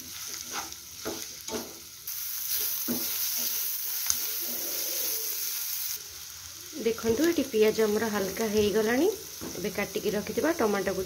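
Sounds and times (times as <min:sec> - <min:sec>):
onions sizzling in oil: 0:00.0 - 0:11.0
spatula scraping a pan: 0:00.1 - 0:01.8.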